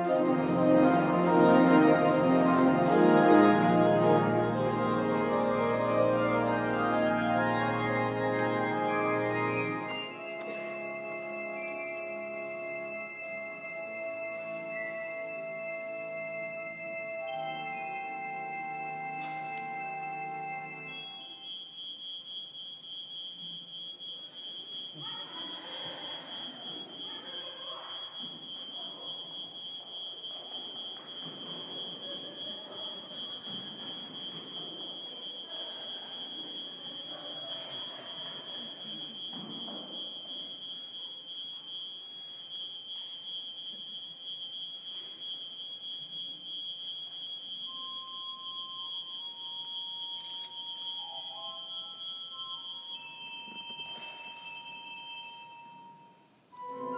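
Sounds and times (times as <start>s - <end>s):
murmur of an audience: 0.0s - 15.1s, 24.9s - 40.6s
pipe organ notes: 0.0s - 21.6s, 47.7s - 56.9s
steady high-pitched tone: 0.0s - 56.9s.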